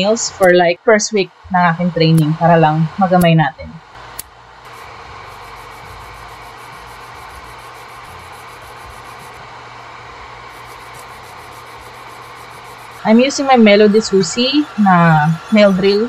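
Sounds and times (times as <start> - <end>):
dust collector fan running: 3.9 - 16.0.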